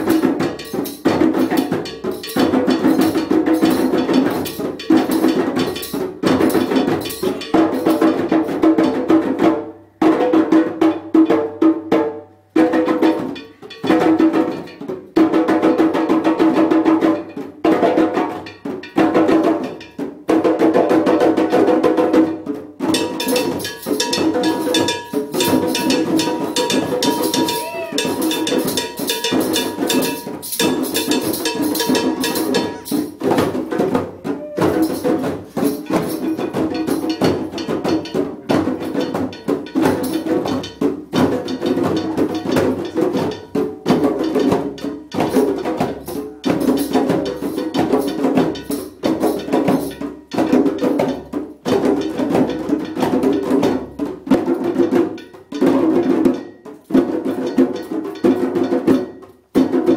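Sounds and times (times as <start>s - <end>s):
djembe drum circle: 0.0s - 59.9s
hand percussion: 0.0s - 59.9s.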